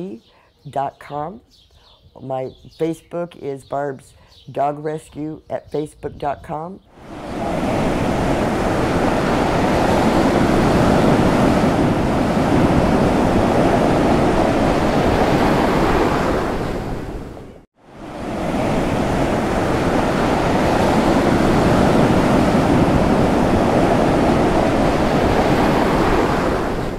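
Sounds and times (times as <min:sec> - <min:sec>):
ocean surf on a beach: 0:07.0 - 0:26.9.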